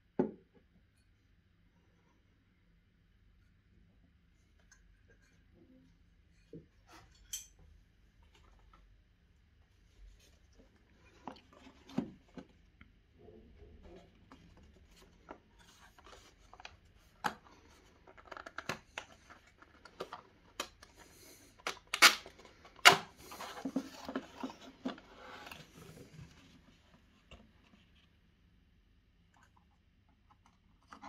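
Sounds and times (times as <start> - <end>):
cardboard box scraping and rustling: 23.2 - 26.4.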